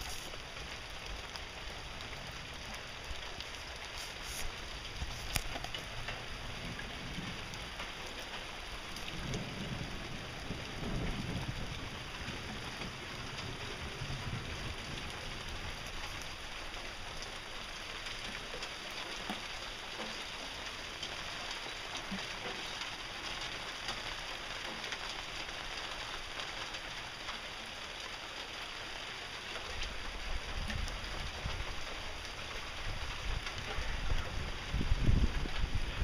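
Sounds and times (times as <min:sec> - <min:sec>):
heavy rain hissing: 0:00.0 - 0:36.0
wind buffeting microphone: 0:08.9 - 0:15.9, 0:32.7 - 0:36.0.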